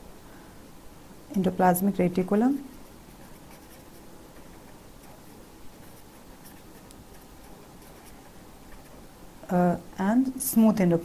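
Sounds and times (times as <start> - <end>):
marker pen scratching on paper: 2.5 - 9.0.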